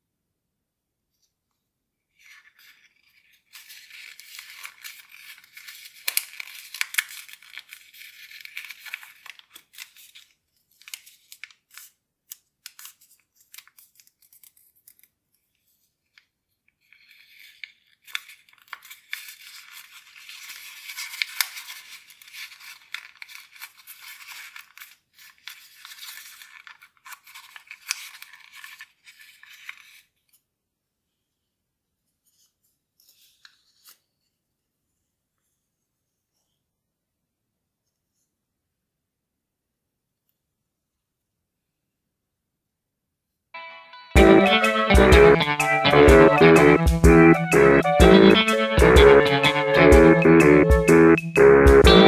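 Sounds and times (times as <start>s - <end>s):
paper rustling and crinkling: 2.1s - 30.5s, 32.0s - 34.4s
paper creasing clicks: 2.6s - 15.1s.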